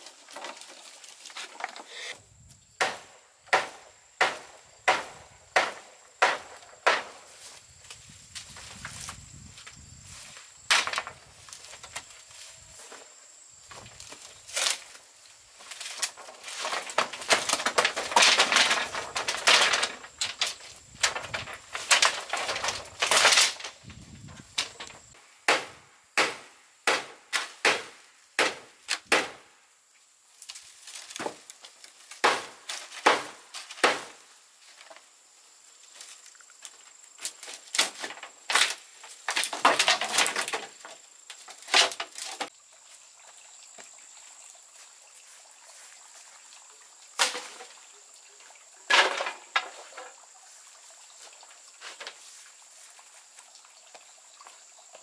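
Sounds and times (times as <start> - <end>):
chopping wood with hand tool: 2.8 - 7.3, 15.8 - 23.7, 25.5 - 29.5, 31.1 - 31.5, 32.1 - 34.2, 37.2 - 42.5, 47.2 - 47.7.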